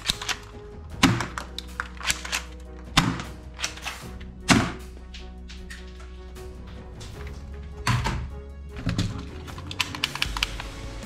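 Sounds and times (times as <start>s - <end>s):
background music: 0.0s - 11.0s
toy clicks: 9.5s - 10.7s.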